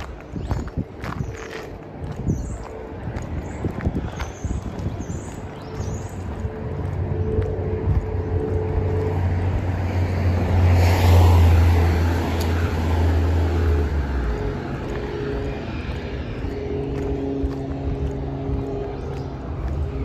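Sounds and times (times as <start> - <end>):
car passing by: 5.8 - 20.0.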